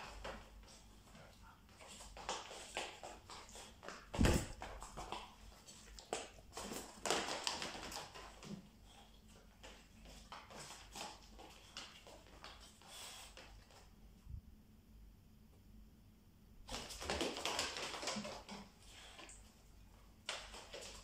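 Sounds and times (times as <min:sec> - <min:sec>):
heavy thump: 0:04.2 - 0:04.6.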